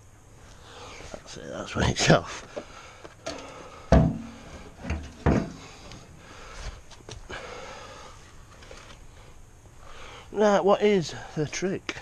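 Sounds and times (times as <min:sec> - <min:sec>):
light knocks: 0:03.3 - 0:05.6.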